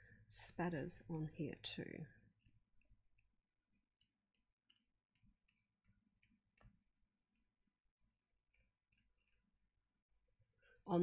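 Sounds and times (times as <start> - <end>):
brush tapping clicks: 3.7 - 9.5.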